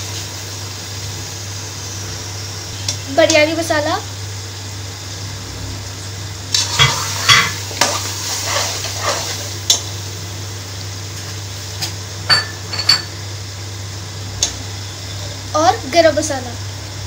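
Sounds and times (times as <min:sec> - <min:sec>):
oil sizzling: 0:00.0 - 0:17.0
steady low hum: 0:00.0 - 0:17.0
metal spatula scraping a pot: 0:06.7 - 0:09.5.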